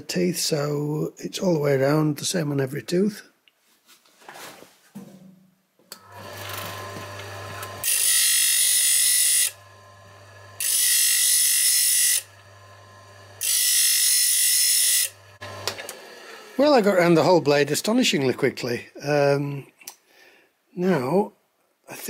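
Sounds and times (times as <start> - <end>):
grinder motor humming: 6.0 - 16.6
high-pitched metal grinding: 10.6 - 12.4.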